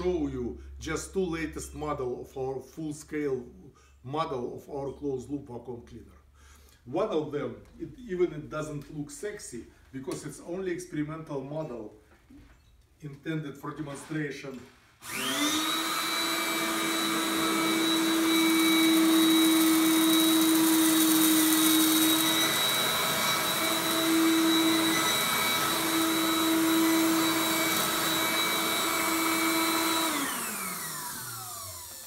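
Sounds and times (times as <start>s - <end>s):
vacuum cleaner motor whining: 15.0s - 32.0s.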